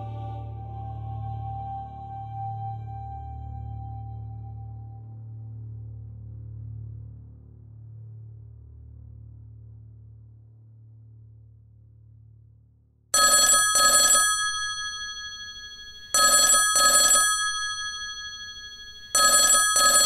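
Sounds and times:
telephone double ring: 13.2s - 20.0s.

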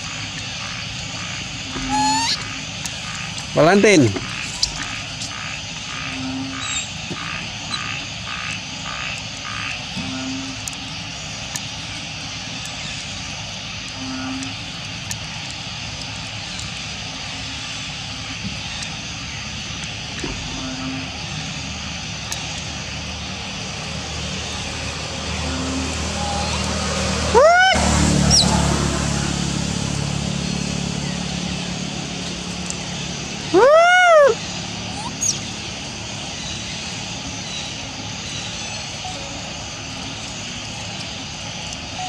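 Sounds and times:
rhythmic pulsing chirp: 0.0s - 11.1s, 36.4s - 42.0s
outdoor background drone: 0.0s - 42.0s.

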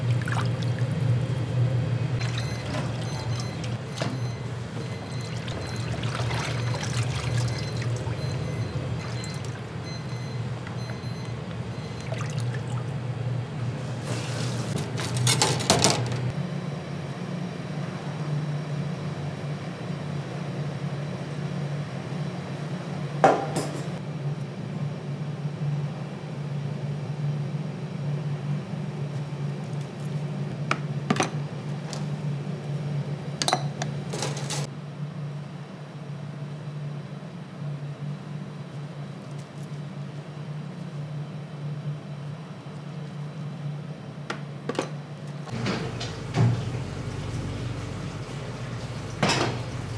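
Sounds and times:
steady low hum: 0.0s - 15.1s
liquid sloshing and pouring: 5.0s - 8.4s, 11.9s - 12.9s
pots and dishes clinking: 48.8s - 49.8s.

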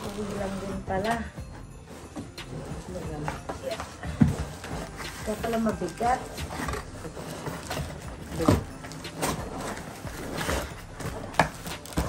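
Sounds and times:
plastic wrapping rustling: 0.0s - 1.2s, 1.8s - 12.0s.

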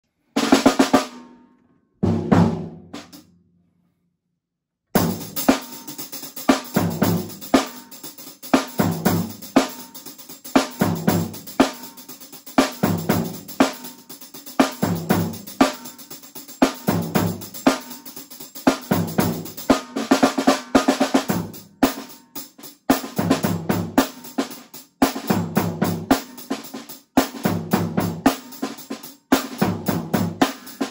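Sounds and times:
drum kit groove: 0.4s - 1.3s, 2.0s - 3.2s, 5.0s - 30.9s
drum hits ringing out: 2.0s - 3.2s.

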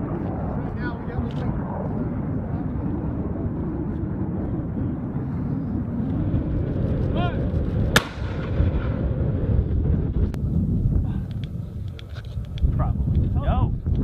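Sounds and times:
low rumble: 0.0s - 14.0s
mortar firing: 7.9s - 8.9s.

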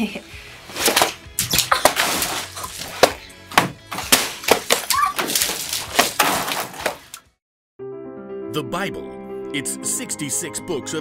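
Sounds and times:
background music: 0.0s - 11.0s
water balloons splatting: 0.8s - 7.3s.

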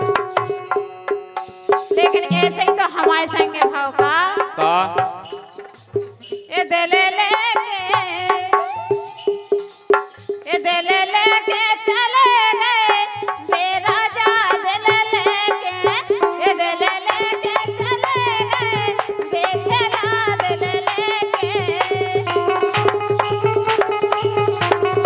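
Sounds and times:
hand drum strokes: 0.0s - 4.4s, 17.5s - 25.0s
woman singing ornamented melody: 2.2s - 4.2s.

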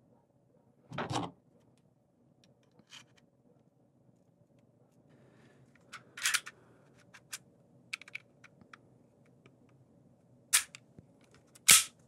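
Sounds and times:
small metal parts clicking and scraping: 5.9s - 7.4s.

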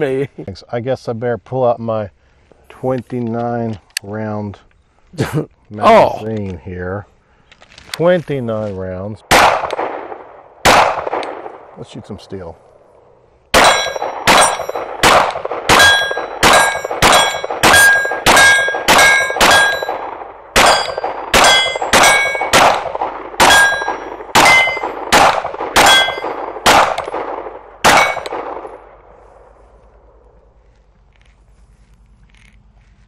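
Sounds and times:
pistol shots: 9.3s - 11.8s, 13.5s - 29.0s
steel targets clanging: 13.6s - 14.9s, 15.7s - 20.0s, 20.6s - 22.6s, 23.4s - 25.0s, 25.8s - 26.4s, 27.9s - 28.3s.

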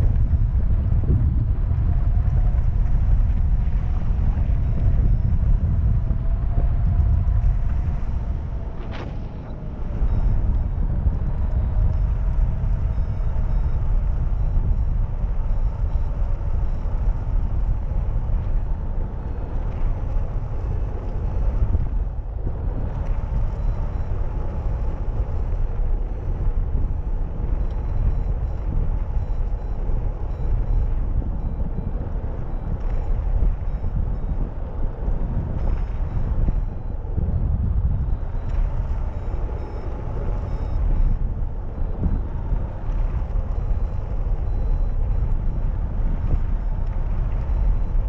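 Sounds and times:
wind buffeting microphone: 0.0s - 48.0s.

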